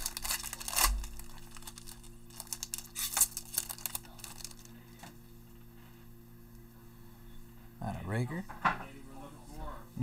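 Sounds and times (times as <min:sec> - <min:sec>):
plastic wrapper crinkling and tearing: 0:00.0 - 0:04.8.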